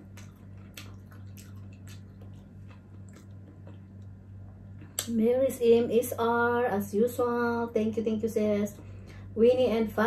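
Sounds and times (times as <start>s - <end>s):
wet mouth chewing clicks: 0.0s - 4.2s
low electrical hum: 0.0s - 10.0s.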